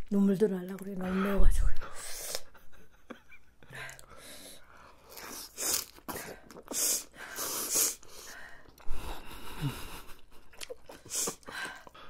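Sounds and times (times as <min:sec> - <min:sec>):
chewing: 0:04.8 - 0:07.1, 0:10.0 - 0:12.0
sharp hissing breaths: 0:06.7 - 0:09.7.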